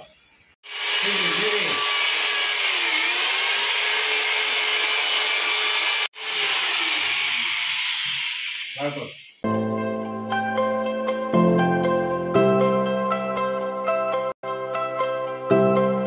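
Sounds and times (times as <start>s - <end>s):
electric drill boring into wall: 0.6s - 9.4s.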